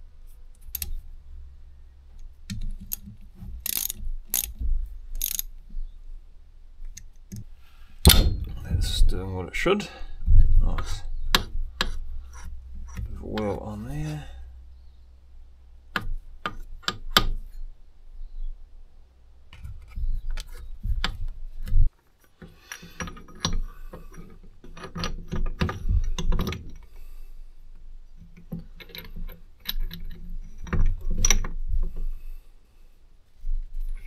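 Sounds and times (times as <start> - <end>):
metal gears clinking: 5.2 - 5.5
handling rumble: 8.0 - 21.9.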